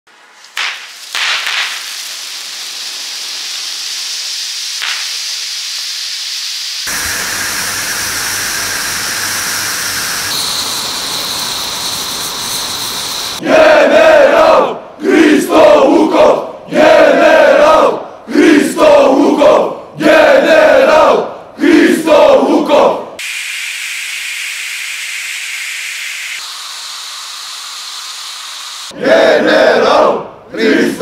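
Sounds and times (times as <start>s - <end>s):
flares burning with a hiss: 0.2s - 13.4s, 23.2s - 29.0s
crowd shouting chants: 13.4s - 23.1s, 28.9s - 31.0s.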